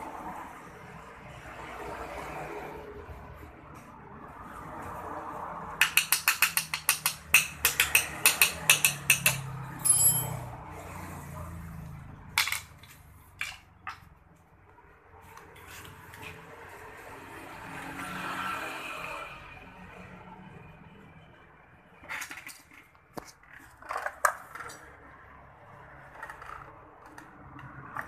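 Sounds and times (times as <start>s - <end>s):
metal tool tapping on engine: 5.8s - 10.4s
metal part clinking and ringing: 5.8s - 10.5s.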